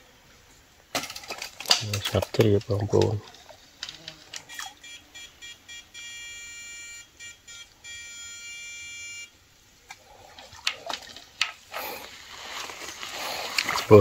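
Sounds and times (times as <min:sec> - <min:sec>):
buzzing tone: 0:04.4 - 0:09.4
person wading through water: 0:09.8 - 0:14.0.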